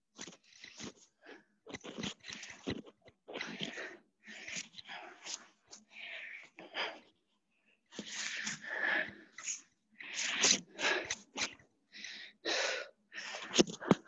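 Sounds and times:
person breathing hard: 0:03.3 - 0:14.0.

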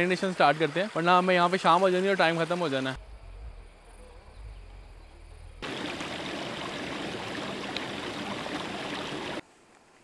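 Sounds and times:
stream splashing over boulders: 0:05.6 - 0:09.4.

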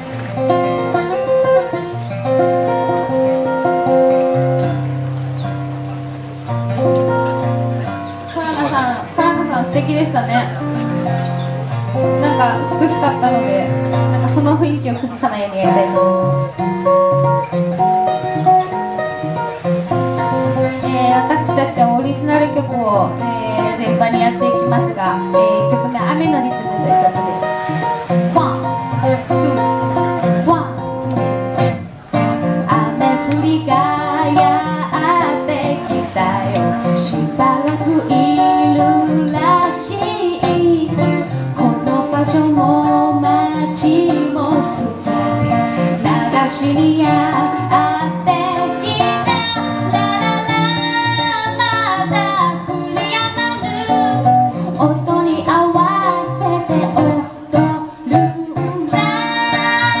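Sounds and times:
strummed acoustic guitar: 0:00.0 - 1:00.0
woman singing into a microphone: 0:12.0 - 0:17.0, 0:20.2 - 1:00.0.

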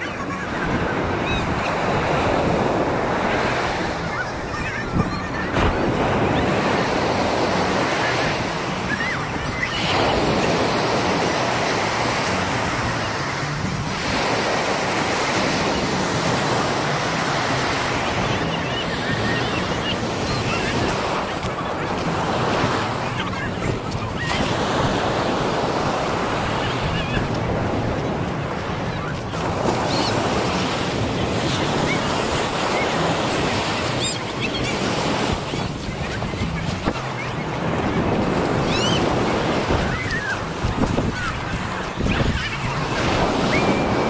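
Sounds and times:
ocean surf breaking: 0:00.0 - 0:44.0
wind buffeting microphone: 0:17.9 - 0:44.0.

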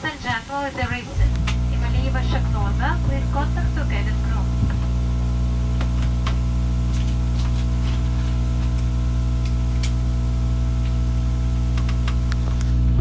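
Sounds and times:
cabin drone: 0:00.0 - 0:13.0.

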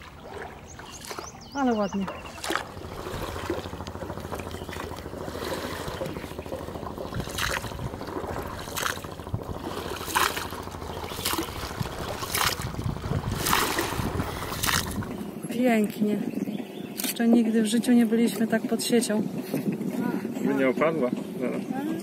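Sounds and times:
oar splashing into water: 0:00.0 - 0:15.2
steady water noise: 0:00.0 - 0:22.0.

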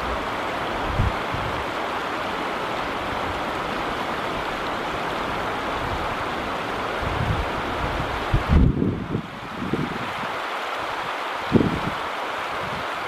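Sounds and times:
wind buffeting microphone: 0:00.0 - 0:01.8, 0:05.3 - 0:13.0
river rushing over stones: 0:00.0 - 0:13.0.

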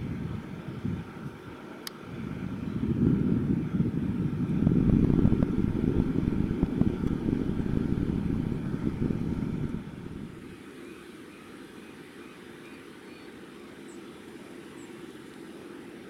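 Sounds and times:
jet engines rumbling: 0:00.0 - 0:11.2.

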